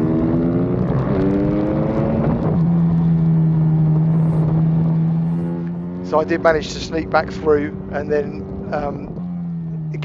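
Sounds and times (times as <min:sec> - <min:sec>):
motorbike engine at full throttle: 0:00.0 - 0:10.0.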